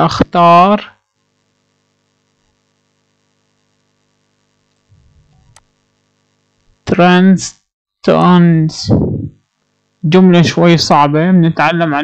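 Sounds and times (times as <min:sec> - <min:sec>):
faint electrical mains hum: 0:00.0 - 0:12.0
click: 0:04.7 - 0:05.7.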